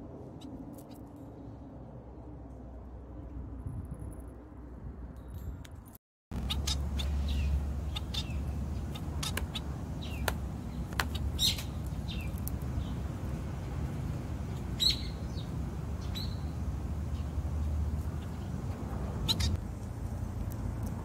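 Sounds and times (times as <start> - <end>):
finches chirping: 6.4 - 18.6, 19.2 - 19.6.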